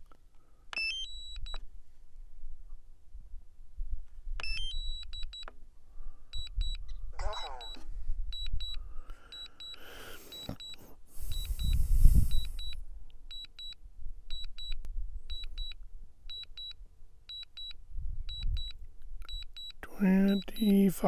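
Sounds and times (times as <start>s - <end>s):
high double beep: 6.4s - 7.8s, 9.4s - 16.7s, 18.3s - 21.0s.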